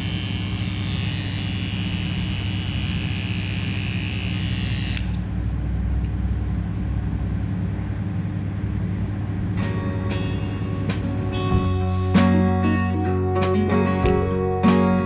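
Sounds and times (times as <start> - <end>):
clipper cutting fur: 0.0 - 5.2
dog clipper motor hum: 0.0 - 5.3.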